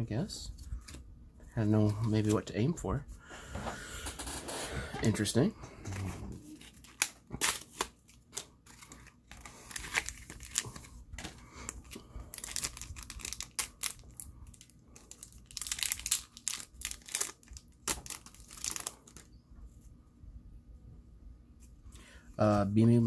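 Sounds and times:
plastic wrapper crinkling: 0:06.4 - 0:19.3.

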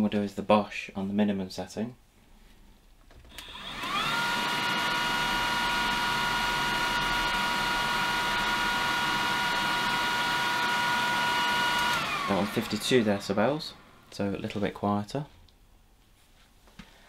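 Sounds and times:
handheld vacuum motor whine: 0:03.3 - 0:14.1.

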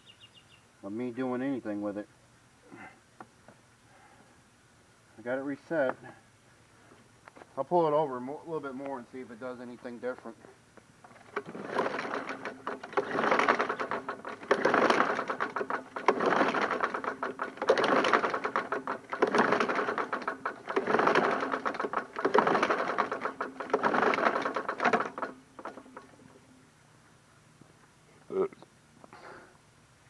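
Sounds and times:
recoil starter cranking engine: 0:11.0 - 0:26.4.

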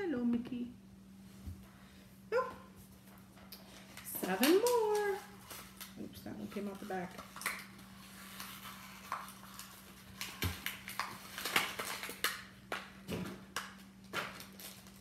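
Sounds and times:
low steady hum: 0:00.0 - 0:15.0
cardboard packaging rustling: 0:03.6 - 0:15.0.

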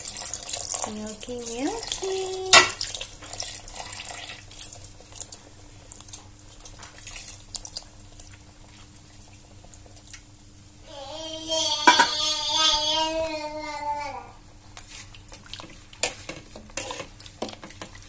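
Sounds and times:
milk trickling into soup: 0:00.0 - 0:10.5
young child babbling: 0:10.9 - 0:14.4.

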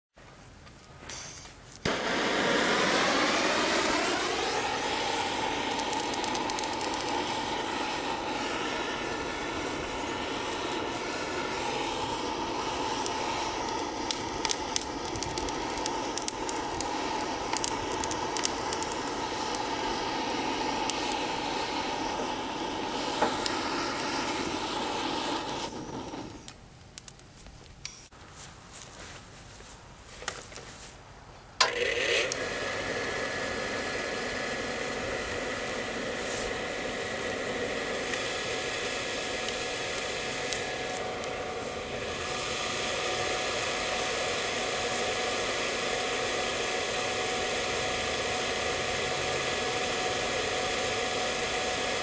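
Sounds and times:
small fire crackles: 0:00.2 - 0:52.0
propane torch roaring: 0:01.8 - 0:27.2, 0:31.6 - 0:52.0.

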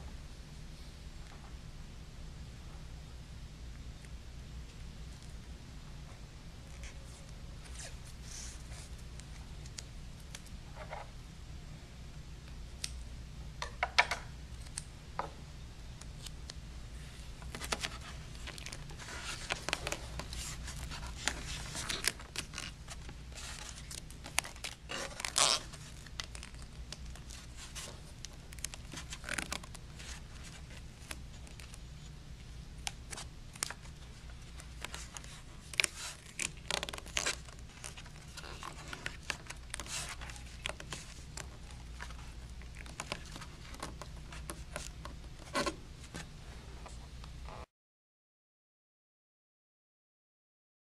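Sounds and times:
steady low hum: 0:00.0 - 0:47.7
tape crinkling and tearing: 0:17.4 - 0:32.1, 0:32.8 - 0:46.2.

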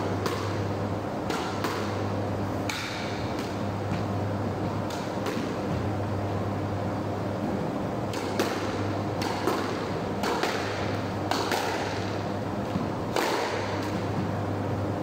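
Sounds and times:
squash ball hits: 0:00.0 - 0:04.1, 0:04.7 - 0:05.9, 0:08.1 - 0:14.3.

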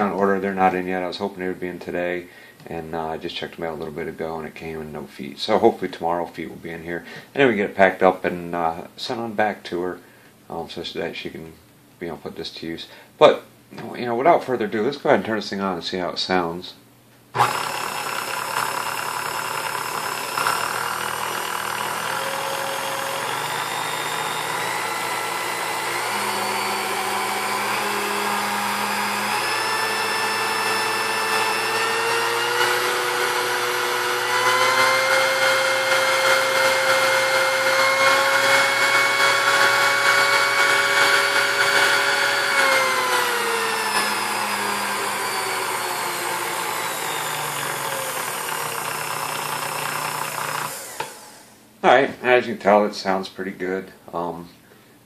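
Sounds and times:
stand mixer motor whine: 0:17.4 - 0:51.6.

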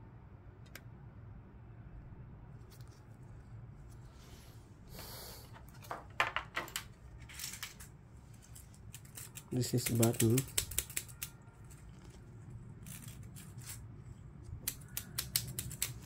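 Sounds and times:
plastic parts rustling: 0:05.5 - 0:16.0.

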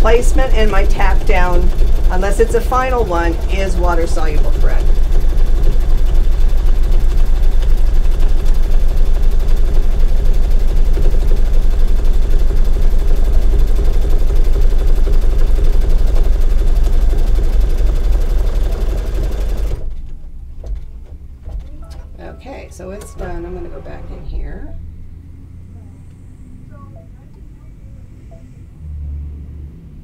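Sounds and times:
embroidery machine stitching: 0:00.0 - 0:21.8.

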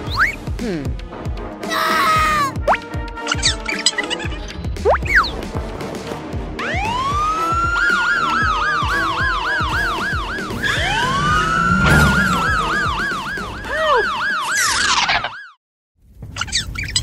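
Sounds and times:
background music: 0:00.0 - 0:14.5
police siren wail and yelp: 0:06.6 - 0:15.6.

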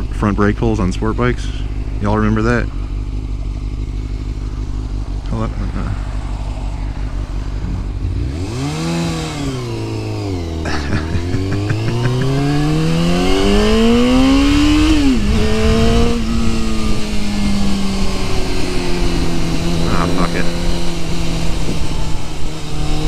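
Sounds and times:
motorcycle engine accelerating: 0:00.0 - 0:23.0
wind noise: 0:12.7 - 0:23.0.

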